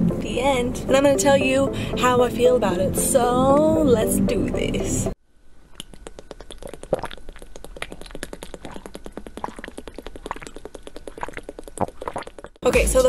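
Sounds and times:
water bubbling and fizzing: 0:05.8 - 0:12.6.

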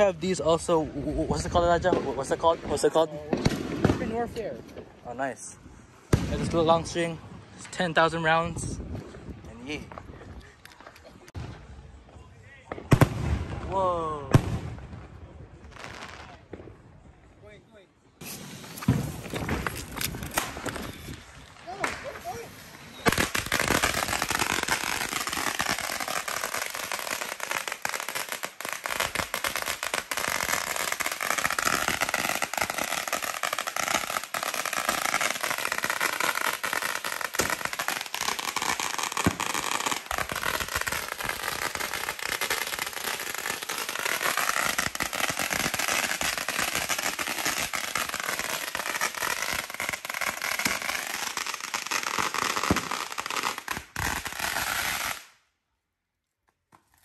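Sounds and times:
firecrackers going off: 0:18.2 - 0:55.4.

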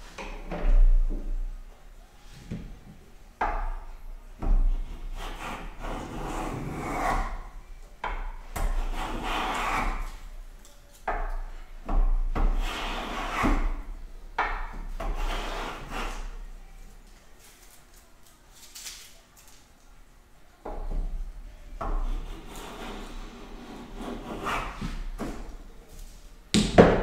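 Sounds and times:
hand plane rasping on wood: 0:04.8 - 0:07.4, 0:08.7 - 0:10.1, 0:12.6 - 0:13.7, 0:15.1 - 0:16.3, 0:22.0 - 0:25.0.

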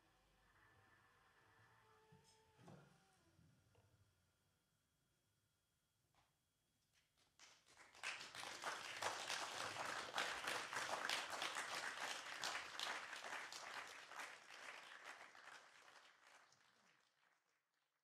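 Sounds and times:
audience applauding: 0:07.4 - 0:17.9.

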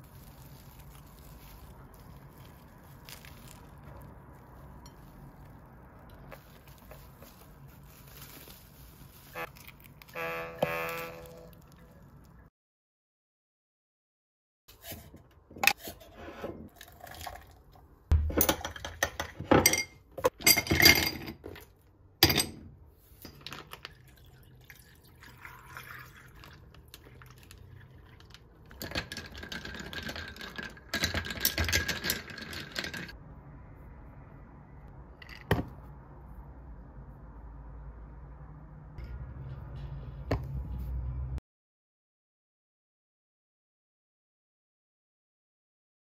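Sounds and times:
cling film crinkling: 0:00.0 - 0:10.2
milk pouring into a glass: 0:16.8 - 0:17.7, 0:23.7 - 0:28.4.

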